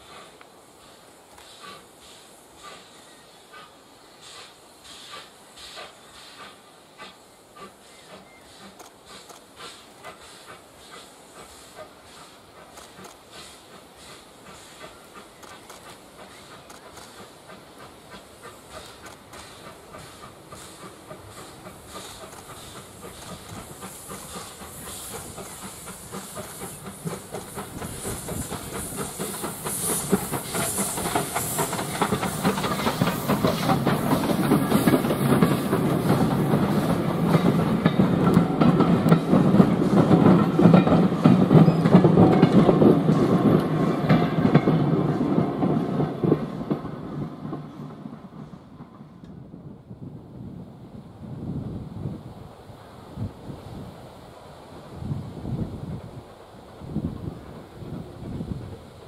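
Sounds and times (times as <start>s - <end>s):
steam locomotive hissing: 0.0s - 49.5s, 50.9s - 59.0s
coaches clattering over rail joints: 25.3s - 48.2s.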